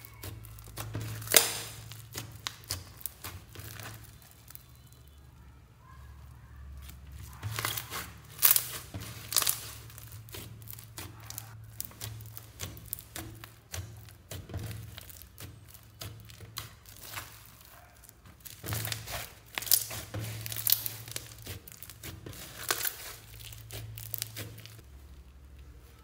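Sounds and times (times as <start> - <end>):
slime crackling and popping: 0.0 - 26.0.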